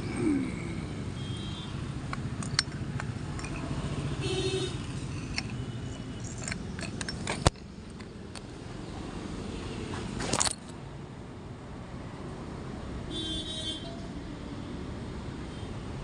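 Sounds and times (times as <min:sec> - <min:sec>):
low hum of road traffic: 0:00.0 - 0:16.0
metal clicks and knocks: 0:02.0 - 0:03.8, 0:04.7 - 0:08.6, 0:10.2 - 0:10.7.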